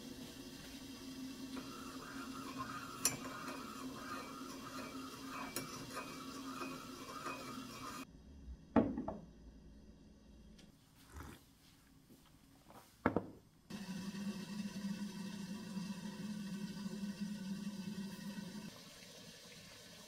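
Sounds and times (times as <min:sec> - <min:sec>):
teaspoon stirring in a ceramic mug: 0:02.0 - 0:08.0.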